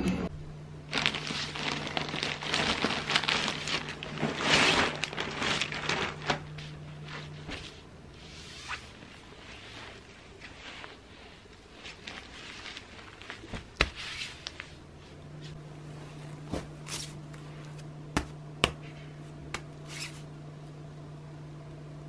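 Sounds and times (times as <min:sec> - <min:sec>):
steady low hum: 0:00.0 - 0:22.0
plastic bag crinkling: 0:00.9 - 0:06.7.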